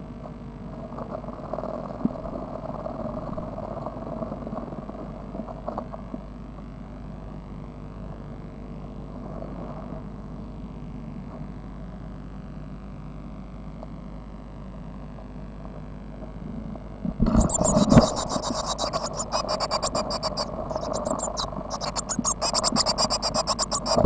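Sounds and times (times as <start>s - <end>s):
steady low hum: 0.0s - 24.0s
chicks rustling in nest box: 17.2s - 24.0s.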